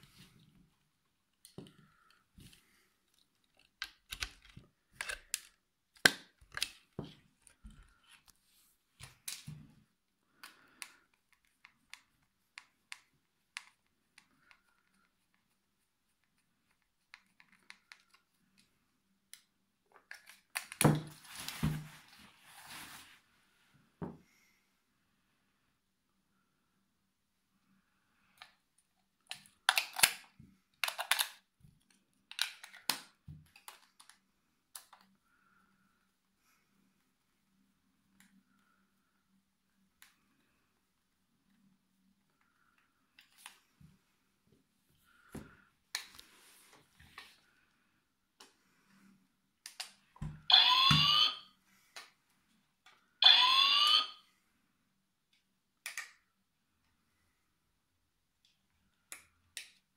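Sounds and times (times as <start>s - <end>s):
plastic clicks and scrapes: 29.2s - 34.2s.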